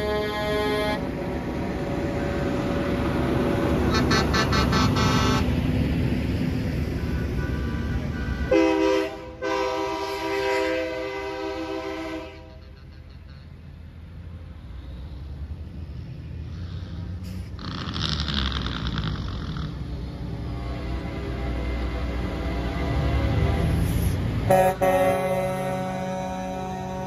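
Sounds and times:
truck air horn blast: 0.0s - 1.1s, 3.9s - 5.6s, 8.3s - 12.8s, 23.8s - 27.0s
trucks rumbling past: 0.0s - 27.0s.

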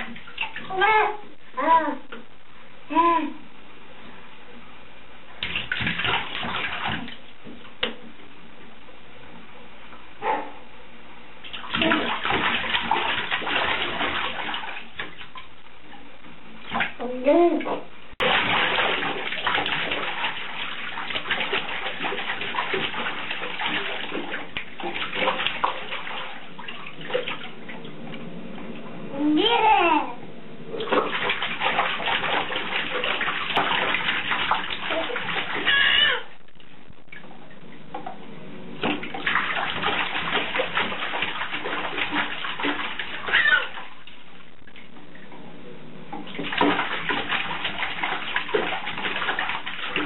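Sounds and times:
bathwater splashing: 0.0s - 1.4s, 5.4s - 8.3s, 11.4s - 28.3s, 30.7s - 45.4s, 46.1s - 50.0s
baby squealing: 35.6s - 36.4s, 43.2s - 43.8s.

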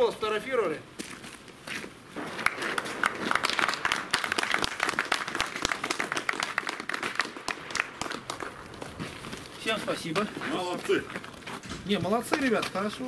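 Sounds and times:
people applauding: 2.4s - 8.9s.

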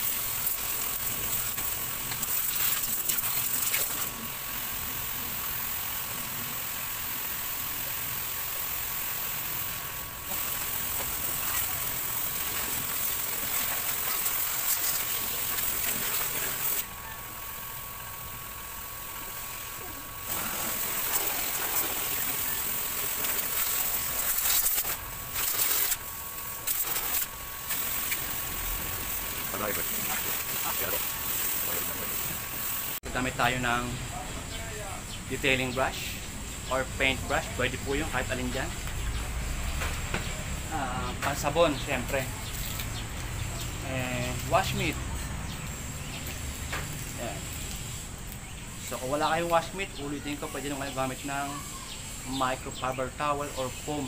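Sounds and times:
hose nozzle spraying water: 0.0s - 33.0s.

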